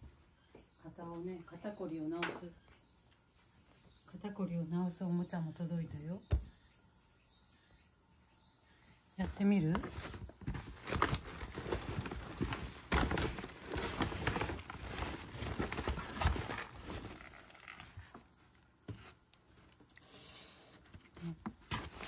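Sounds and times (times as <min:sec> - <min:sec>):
irregular knocks and rustles: 0:09.2 - 0:19.9.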